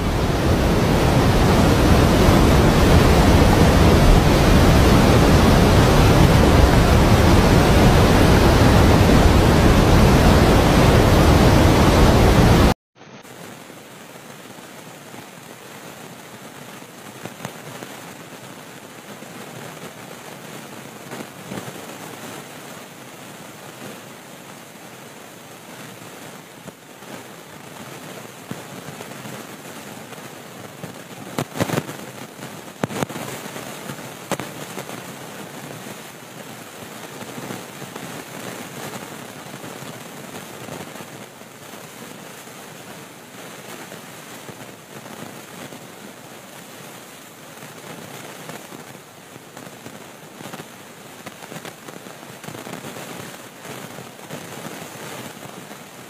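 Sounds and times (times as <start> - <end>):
gusting wind: 0.0 - 12.8
heavy rain: 0.0 - 56.0.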